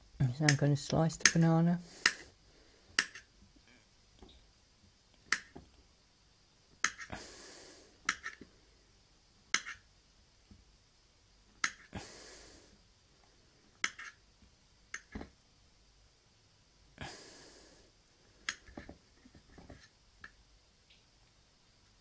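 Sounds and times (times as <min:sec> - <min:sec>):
knife scraping: 0:09.5 - 0:09.9, 0:13.8 - 0:14.2.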